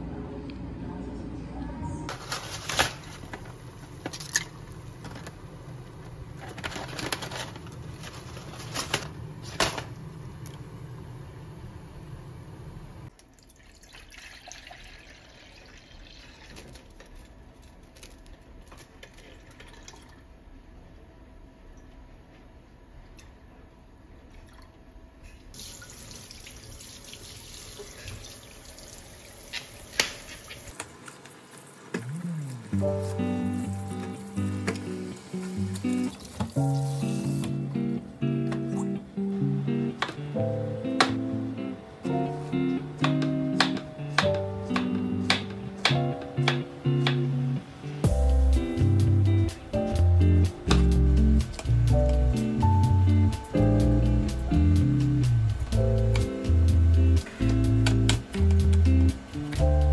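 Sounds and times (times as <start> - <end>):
steady low hum: 0.0 - 13.1.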